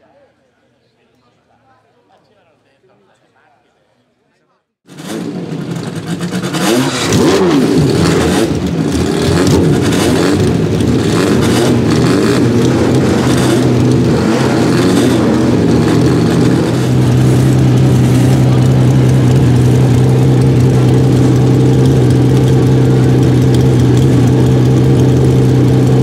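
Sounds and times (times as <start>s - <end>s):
racing engine revving: 4.9s - 26.0s.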